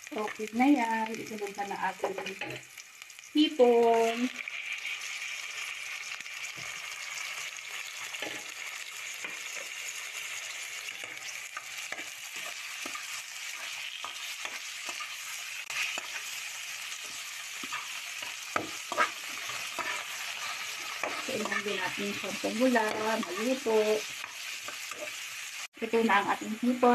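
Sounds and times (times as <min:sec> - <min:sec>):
shrimp sizzling in a frying pan: 0:00.0 - 0:26.9.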